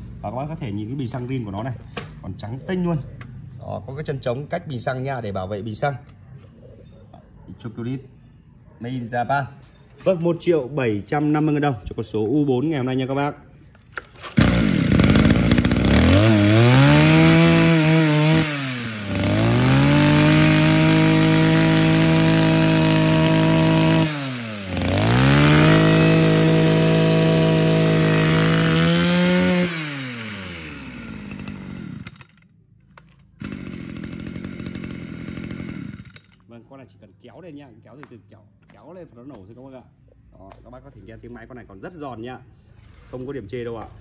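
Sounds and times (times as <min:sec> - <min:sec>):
brush cutter engine revving: 0:14.0 - 0:32.4, 0:33.4 - 0:36.4.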